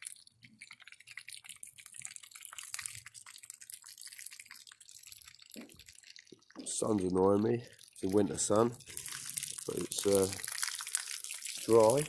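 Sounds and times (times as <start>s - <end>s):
fish frying in hot oil: 0.0s - 12.0s.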